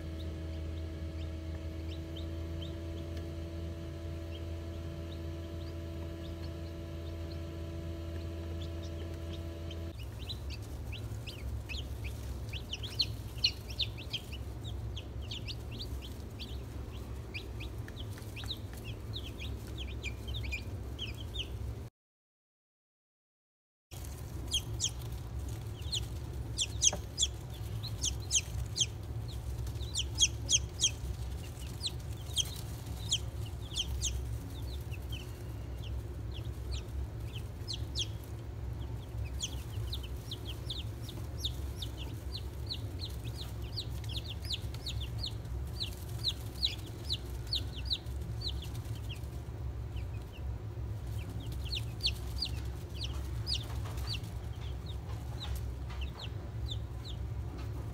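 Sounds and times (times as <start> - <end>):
chicks peeping: 0.0 - 21.9, 24.0 - 57.9
steady low hum: 0.0 - 21.9, 23.9 - 57.9.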